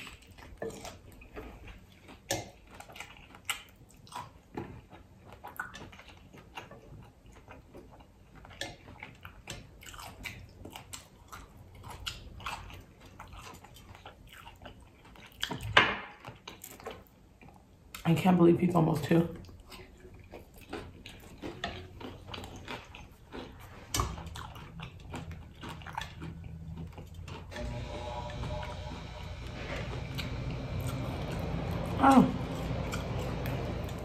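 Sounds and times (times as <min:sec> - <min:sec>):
chewing crunchy taco shell: 0:00.0 - 0:18.1, 0:19.3 - 0:28.4, 0:29.0 - 0:34.0.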